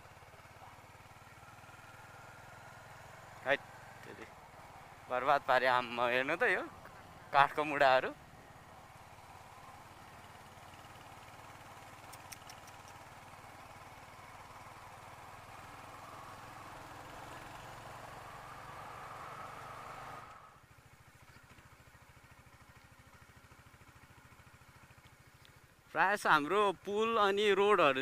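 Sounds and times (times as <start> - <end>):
motorcycle engine running: 0.0 - 28.0
quick clicks: 12.0 - 13.1.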